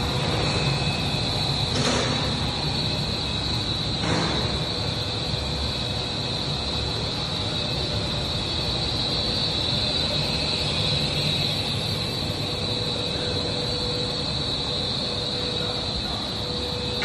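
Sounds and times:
extrusion machine running: 0.0s - 17.0s.

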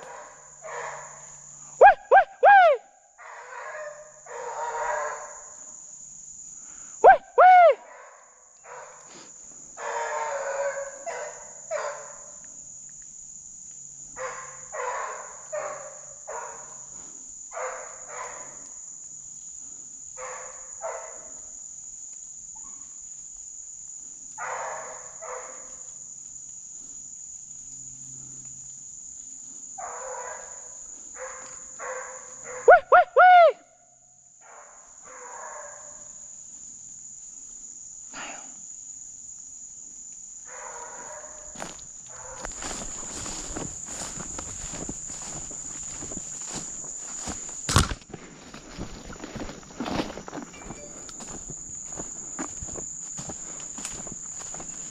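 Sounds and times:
hounds baying: 0.0s - 5.5s, 9.8s - 12.4s, 14.2s - 18.6s, 29.8s - 33.6s, 40.5s - 47.6s, 48.4s - 54.9s
insects droning: 0.0s - 54.9s.

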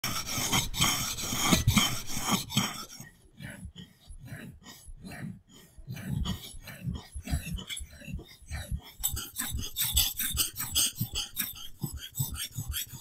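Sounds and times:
knife rasping on whetstone: 0.0s - 3.1s, 9.0s - 13.0s.

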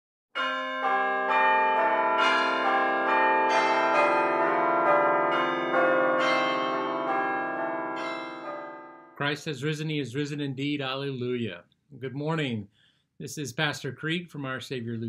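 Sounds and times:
church bells ringing: 0.4s - 9.2s.

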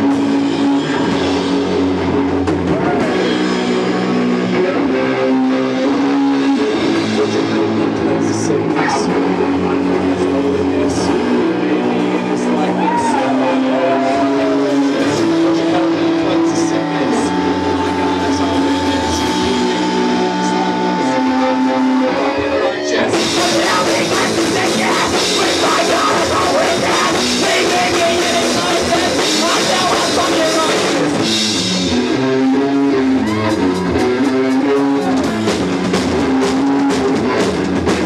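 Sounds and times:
rock band music: 0.0s - 38.0s
drum strokes: 23.1s - 32.1s.

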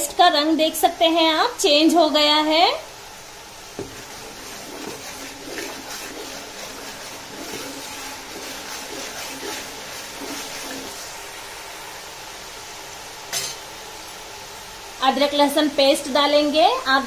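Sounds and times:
paste sizzling in oil: 3.1s - 12.4s
steel ladle scraping a pot: 3.9s - 11.0s.

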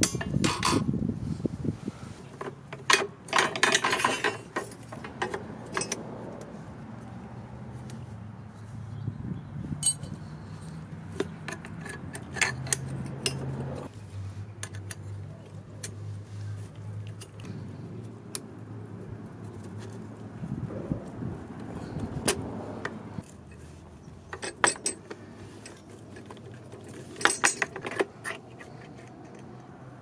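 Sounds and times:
metal spring clicking and clinking: 24.4s - 28.4s.

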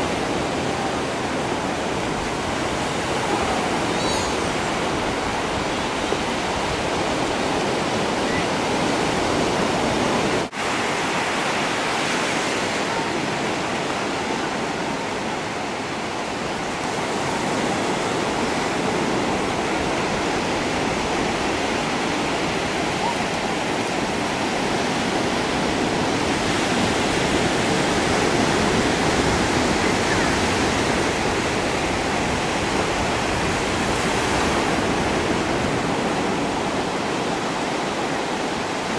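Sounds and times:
waves breaking on a beach: 0.0s - 38.9s.

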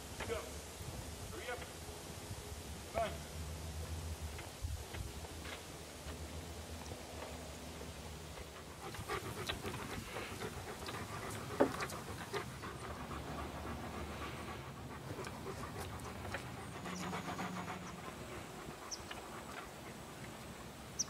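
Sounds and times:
dog panting: 8.3s - 20.8s.

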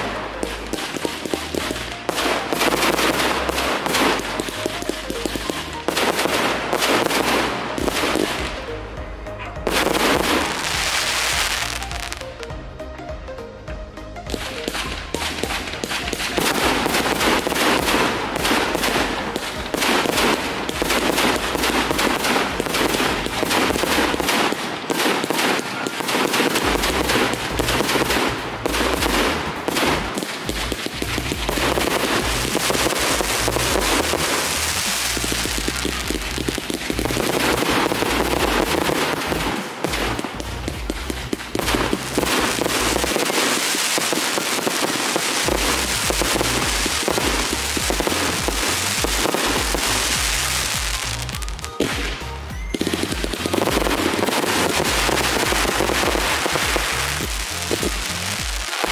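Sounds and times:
fireworks bangs and crackling: 0.0s - 58.9s
music playing: 0.0s - 58.9s.

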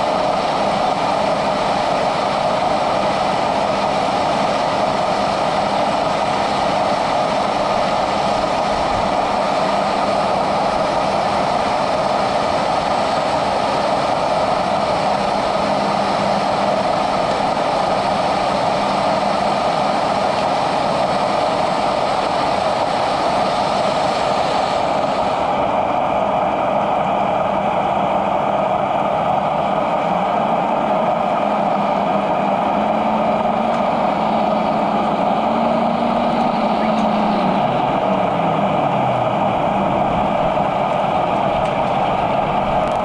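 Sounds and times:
mechanical drone: 0.0s - 43.0s
hissing rush: 28.6s - 43.0s.

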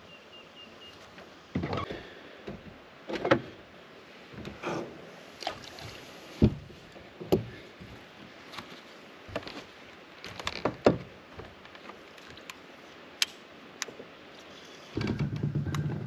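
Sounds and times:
gear knocking and clattering: 15.0s - 16.0s.

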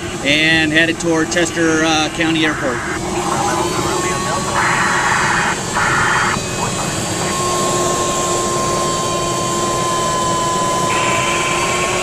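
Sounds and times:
light aircraft engine drone: 0.0s - 12.0s
steady high tone: 1.3s - 12.0s.

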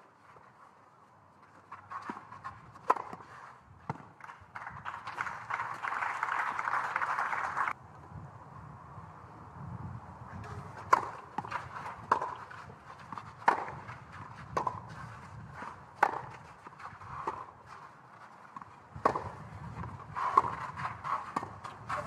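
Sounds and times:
racket striking tennis ball: 1.7s - 4.4s, 10.4s - 22.0s
tennis ball bouncing: 1.8s - 4.4s, 10.7s - 22.0s.

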